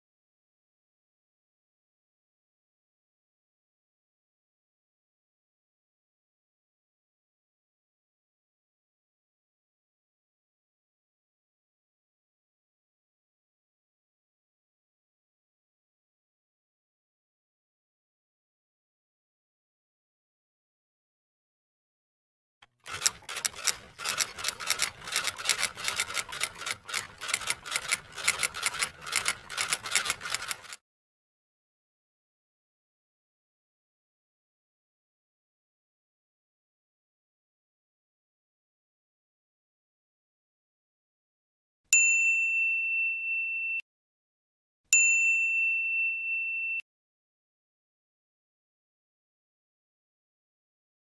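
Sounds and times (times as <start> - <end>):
bright ding chime: 42.3 - 43.8, 45.1 - 46.8.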